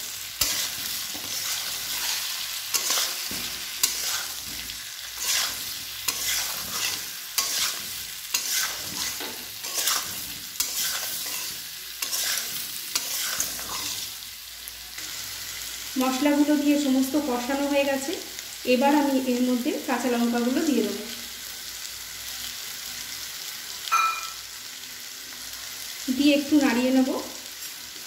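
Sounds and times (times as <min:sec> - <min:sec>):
frying in oil sizzling: 0:00.0 - 0:28.0
metal spatula scraping pan: 0:00.4 - 0:14.1.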